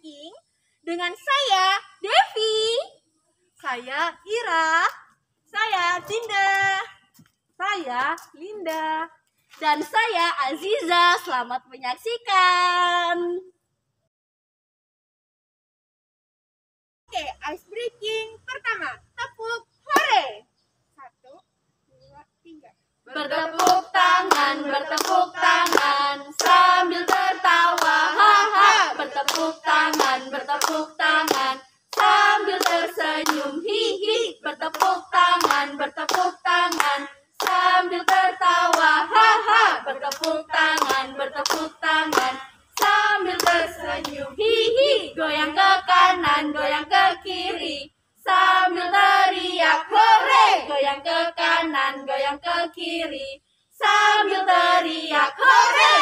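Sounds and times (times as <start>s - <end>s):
women singing a chant: 3.6s - 7.0s, 7.6s - 13.5s, 23.1s - 56.0s
hand claps: 8.0s - 8.9s, 23.5s - 33.5s, 34.6s - 38.9s, 40.0s - 44.2s.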